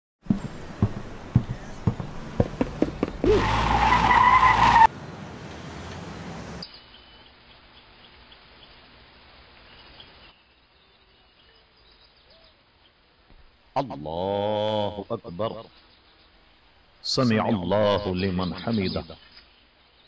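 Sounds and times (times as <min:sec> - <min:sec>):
loud cartoon screeching: 0:03.2 - 0:04.9
steady hiss: 0:06.5 - 0:20.0.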